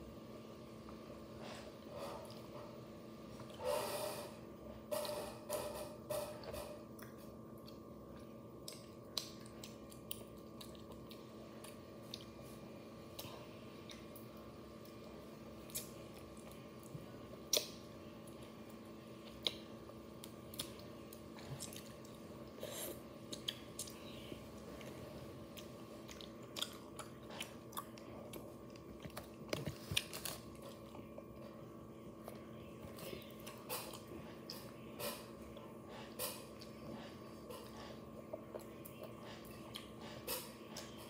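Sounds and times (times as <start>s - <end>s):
steady low hum: 0.0s - 41.0s
girl chewing and sucking: 18.8s - 31.6s.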